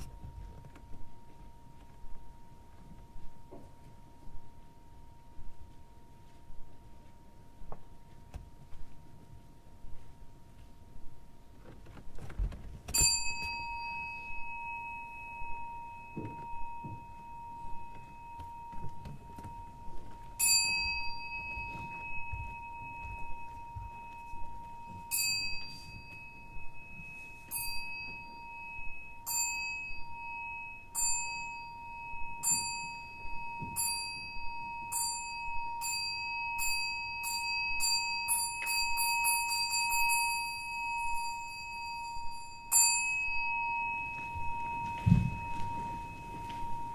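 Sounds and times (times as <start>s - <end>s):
metal bell struck: 13.0s - 46.9s.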